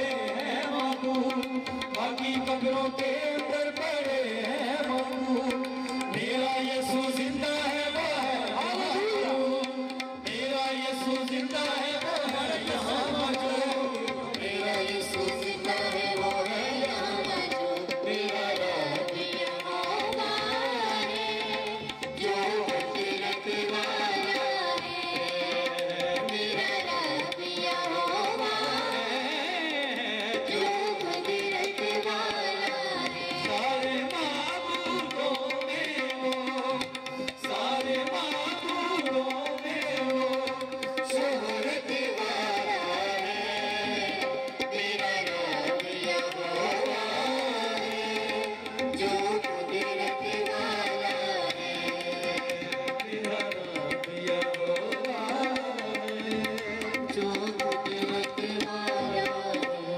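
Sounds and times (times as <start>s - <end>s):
tabla drumming: 0.0s - 59.9s
person singing: 41.2s - 59.9s.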